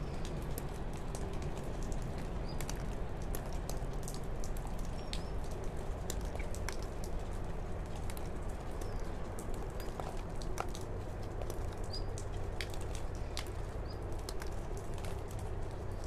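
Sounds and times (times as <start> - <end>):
light ticks: 0.1 - 16.0.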